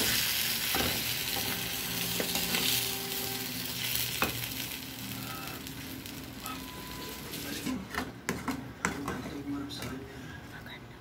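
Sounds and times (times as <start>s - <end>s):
sauce sizzling in a frying pan: 0.0s - 7.7s.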